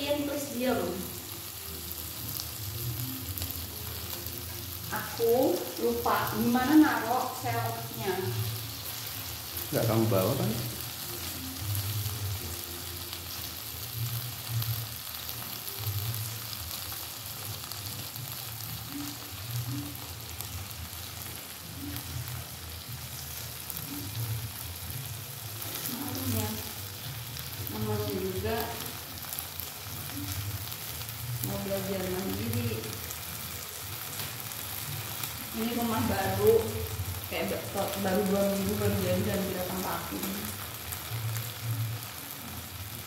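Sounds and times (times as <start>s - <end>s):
shrimp sizzling in wok: 0.0s - 43.0s.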